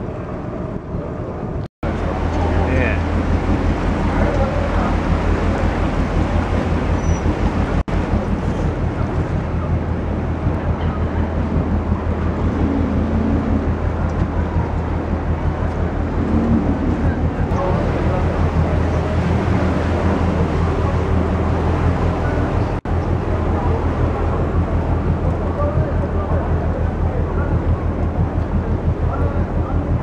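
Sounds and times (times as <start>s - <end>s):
boat engine humming: 0.0s - 30.0s
wind noise on microphone: 0.0s - 30.0s.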